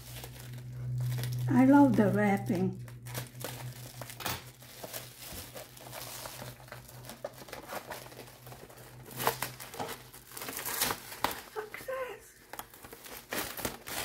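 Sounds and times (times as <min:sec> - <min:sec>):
package wrapping crinkling: 0:00.0 - 0:14.0.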